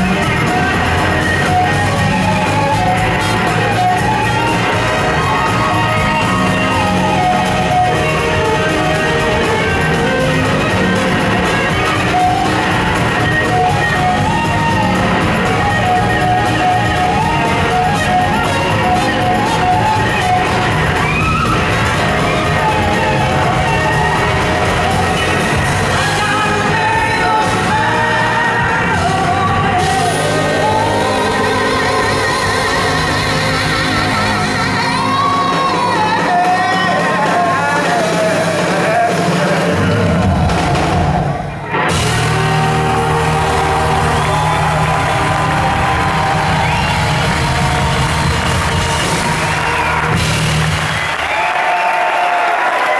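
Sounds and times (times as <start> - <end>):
blues-rock band playing: 0.0 - 52.9
woman singing: 25.8 - 39.2.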